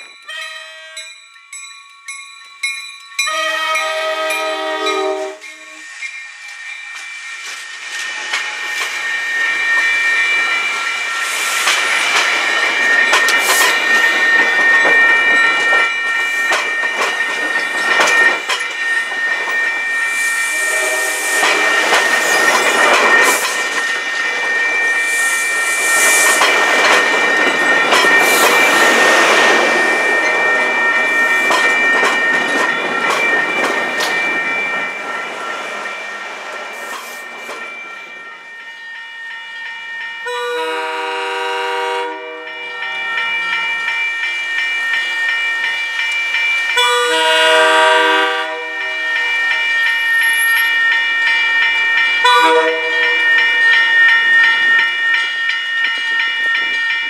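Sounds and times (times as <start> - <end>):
high-pitched squeal: 4.9 - 40.2
train wheels clicking over rail joints: 6.5 - 19.8, 21.2 - 37.8.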